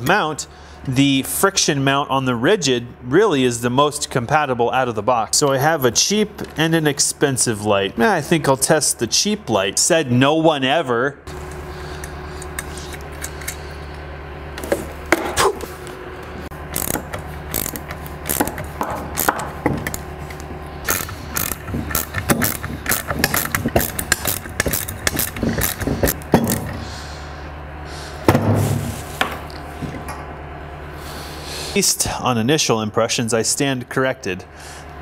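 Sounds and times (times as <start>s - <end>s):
low hum: 11.1s - 31.8s
metal hardware clicking and rattling: 16.7s - 26.7s
thump: 28.3s - 28.9s.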